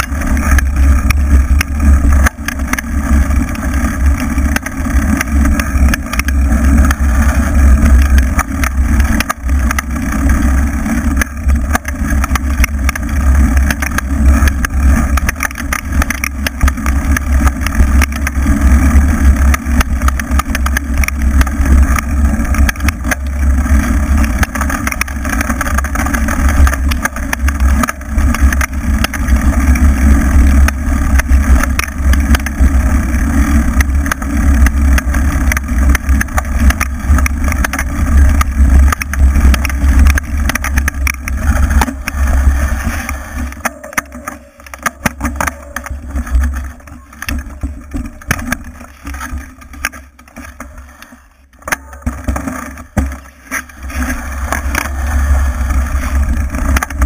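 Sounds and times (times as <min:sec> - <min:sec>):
tyre and vehicle running noise: 0:00.0 - 0:57.0
wind buffeting camera: 0:51.9 - 0:57.0.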